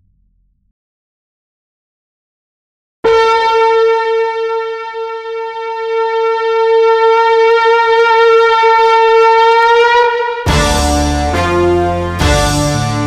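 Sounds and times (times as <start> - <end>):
conch shell blown: 3.0 - 13.0
instrumental music: 10.5 - 13.0.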